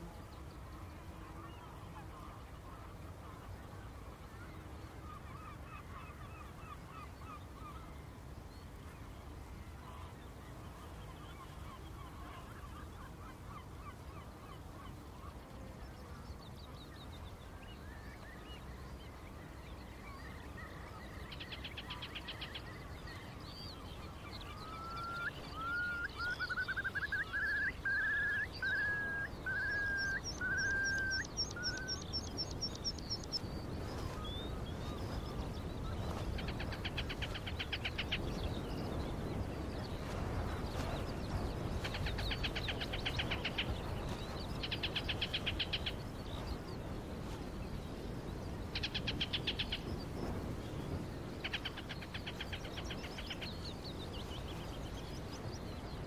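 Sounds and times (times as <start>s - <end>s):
low rush of wind or water: 0.0s - 56.0s
shorebirds calling: 20.0s - 56.0s.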